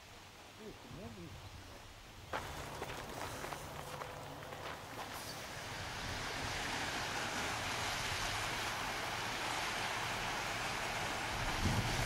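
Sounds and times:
boat engine hum: 2.4s - 12.0s
water rushing from boat wash: 2.4s - 12.0s.

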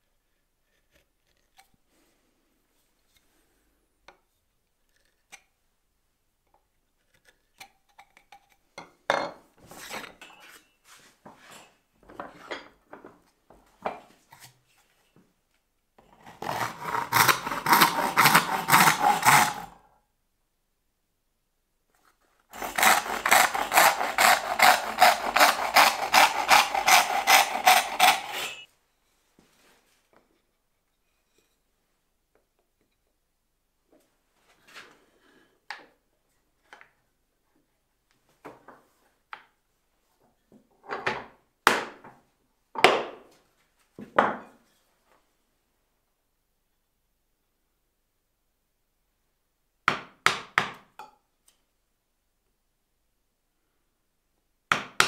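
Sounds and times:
hand saw cutting wood: 16.0s - 19.8s, 22.5s - 28.7s
hand tools tapping and scraping wood: 21.9s - 28.7s.

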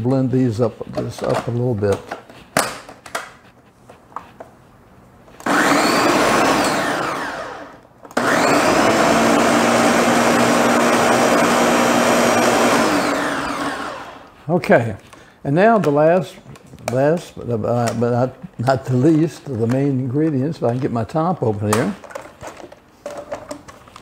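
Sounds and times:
blender mixing liquid: 5.4s - 14.3s.

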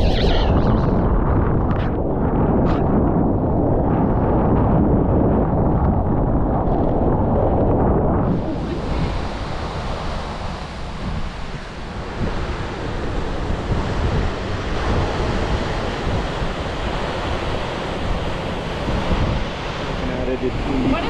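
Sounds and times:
wind buffeting microphone: 0.0s - 21.0s
surf washing on cobble beach: 8.2s - 21.0s.

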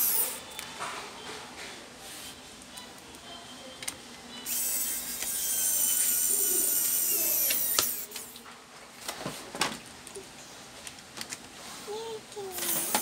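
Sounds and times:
electric screwdriver whining: 4.5s - 8.2s.

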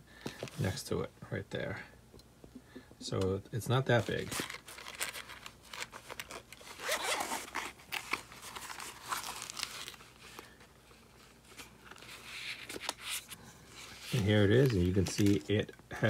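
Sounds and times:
zipper opening in raspy strokes: 6.7s - 7.8s.

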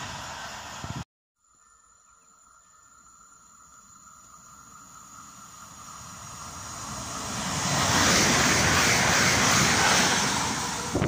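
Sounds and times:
train wheels rushing on rails: 5.4s - 11.0s.

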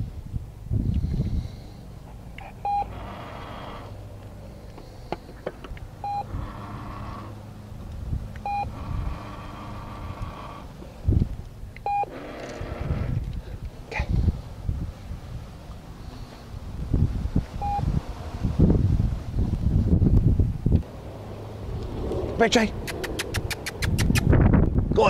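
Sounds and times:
treat dispenser beeping: 2.6s - 3.0s, 6.0s - 6.4s, 8.4s - 8.8s, 11.8s - 12.2s.

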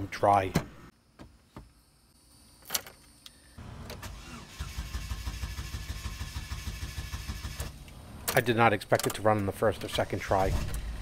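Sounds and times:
engine cranking: 4.0s - 7.8s.

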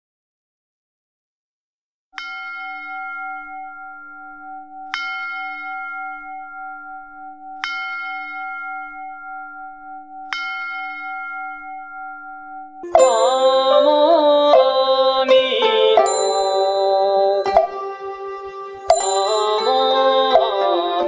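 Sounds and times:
bell ringing: 2.2s - 21.0s.

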